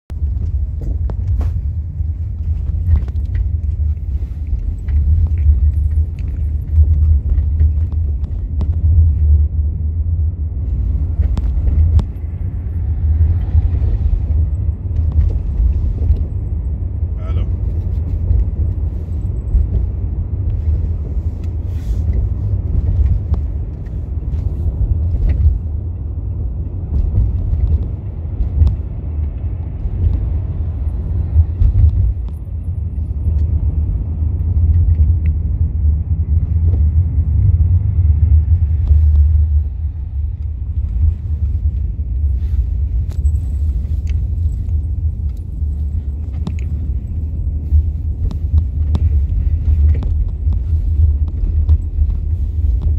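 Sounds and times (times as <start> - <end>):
bus engine and road rumble: 0.0 - 52.9
light clicks and rattles: 0.2 - 9.6, 40.2 - 52.9.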